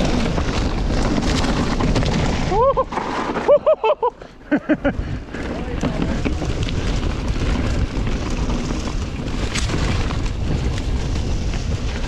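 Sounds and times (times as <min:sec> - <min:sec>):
bike clicks and rattles: 0:00.0 - 0:12.0
wind buffeting microphone: 0:04.7 - 0:12.0.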